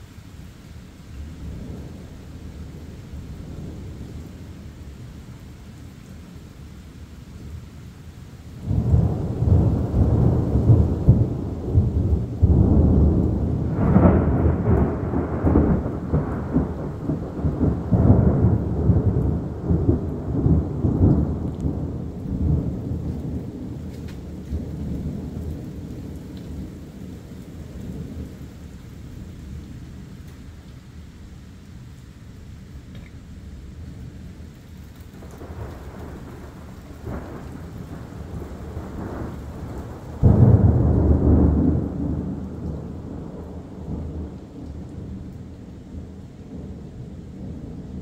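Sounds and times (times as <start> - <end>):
steady rain: 0.0 - 48.0
thunder rumbling: 8.6 - 28.5, 35.1 - 48.0.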